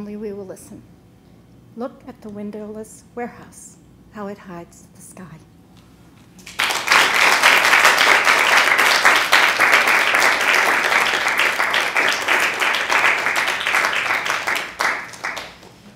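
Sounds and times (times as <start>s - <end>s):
audience applauding: 6.4s - 15.9s.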